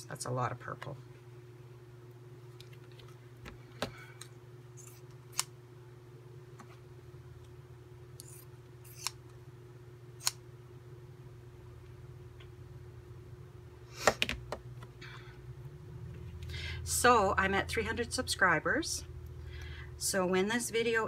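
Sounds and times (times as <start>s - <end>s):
shears snipping fabric: 4.8s - 5.5s, 8.2s - 9.2s.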